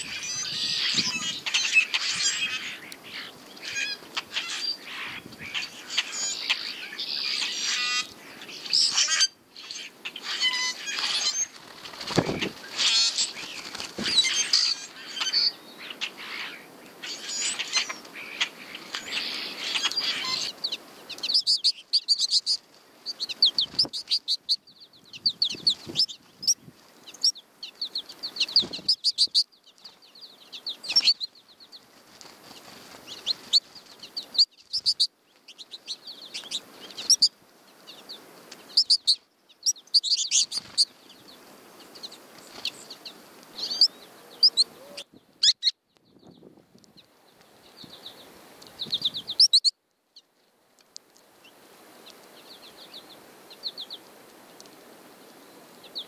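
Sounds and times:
songbirds chirping: 0.0s - 56.0s
wing flutters: 9.8s - 15.1s, 31.9s - 35.0s, 40.4s - 41.0s.

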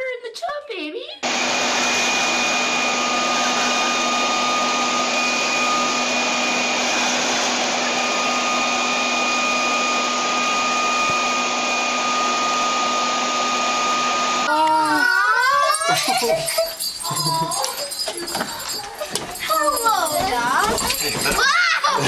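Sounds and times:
leaf blower running: 1.2s - 22.0s.

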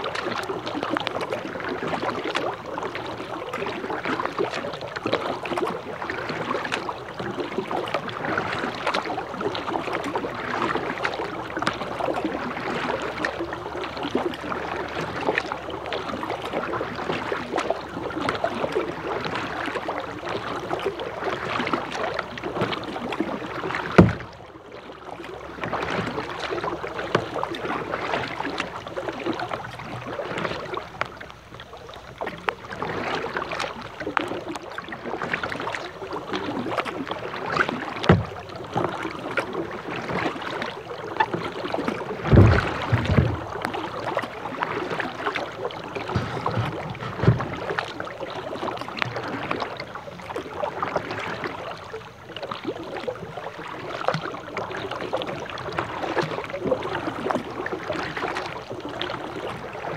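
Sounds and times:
paddling in water: 0.0s - 59.9s
rain pattering on a plastic kayak: 0.0s - 59.9s
loud thump: 42.3s - 43.4s.

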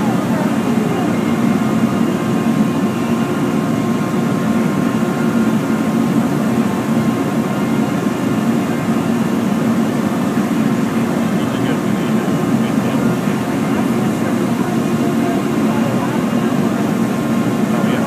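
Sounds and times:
faint steady whine: 0.0s - 18.0s
roar of furnaces and blowers: 0.0s - 18.0s.

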